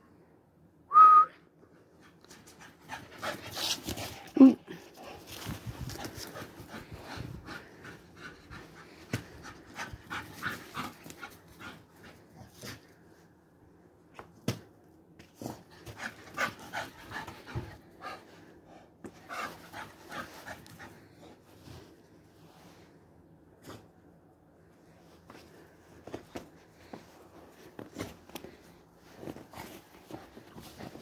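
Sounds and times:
dog panting: 2.0s - 12.3s.

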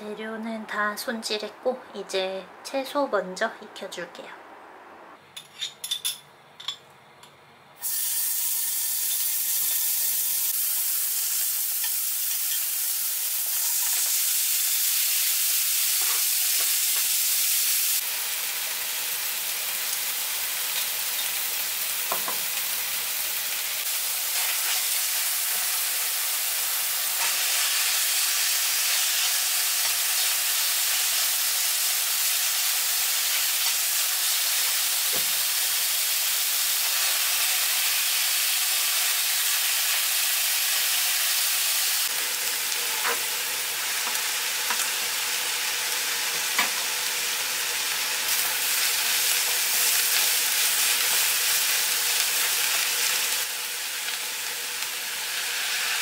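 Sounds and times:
vegetables sizzling in oil: 7.8s - 56.0s.

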